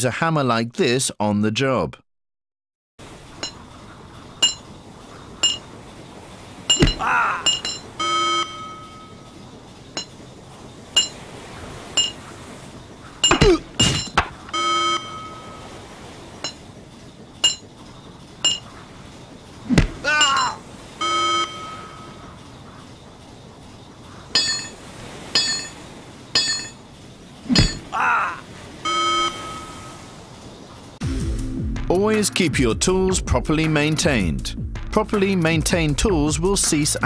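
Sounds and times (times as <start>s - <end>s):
hammer clinking on metal cover: 3.4s - 3.6s, 4.4s - 4.7s, 5.4s - 5.7s, 6.7s - 9.0s, 10.0s - 10.2s, 11.0s - 11.2s, 12.0s - 12.2s, 13.2s - 14.3s, 16.4s - 16.6s, 17.4s - 17.7s, 18.5s - 18.7s, 24.4s - 25.8s, 26.4s - 26.8s
heavy thuds: 6.7s - 8.0s, 13.2s - 14.6s, 19.6s - 20.6s, 27.5s - 28.0s.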